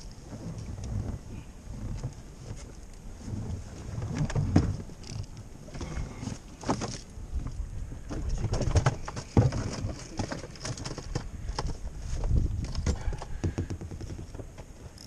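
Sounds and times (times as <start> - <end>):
water slapping boat hull: 0.0 - 15.0
wind rumble on microphone: 0.0 - 15.0
knocks and clicks of gear: 6.6 - 7.1, 8.1 - 15.0.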